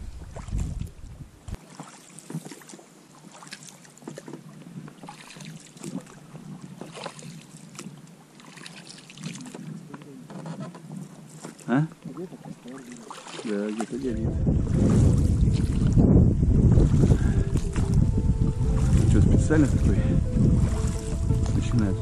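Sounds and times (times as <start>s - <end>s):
wind buffeting microphone: 0.0s - 1.6s, 13.8s - 22.0s
small waves lapping against boat: 0.0s - 22.0s.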